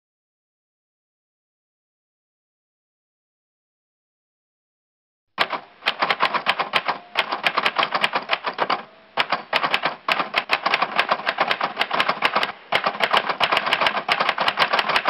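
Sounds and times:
fast typing on keyboard: 5.4s - 15.0s.

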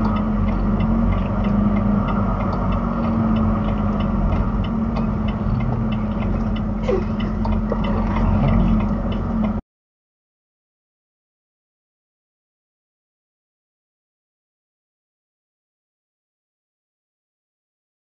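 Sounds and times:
light irregular ticking: 0.0s - 9.6s
truck engine droning: 0.0s - 9.6s.

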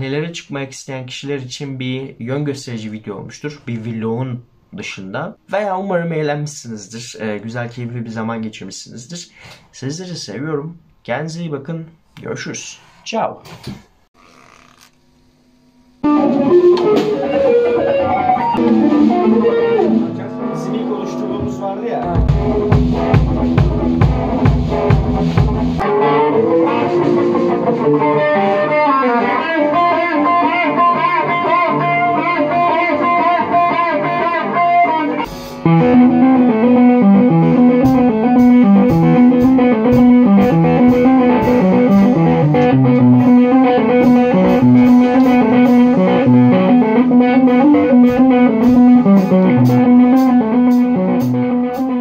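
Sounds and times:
electric guitar lead: 16.0s - 52.0s
drum kit: 16.1s - 33.4s, 35.2s - 52.0s.

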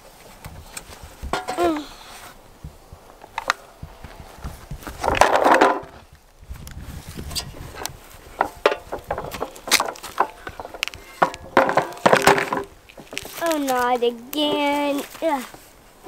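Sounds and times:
plastic toy truck knocking: 8.4s - 13.3s.

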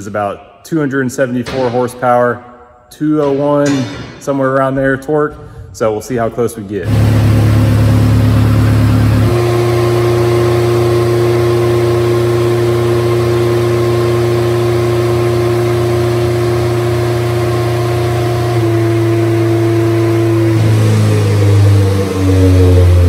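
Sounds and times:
race engine running steadily: 6.8s - 23.0s.

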